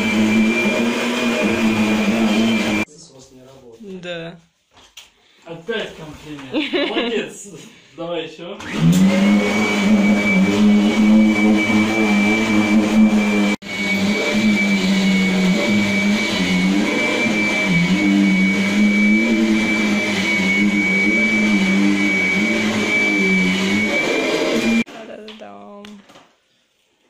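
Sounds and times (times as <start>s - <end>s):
vacuum cleaner running on carpet: 0.0s - 2.9s, 8.6s - 24.9s.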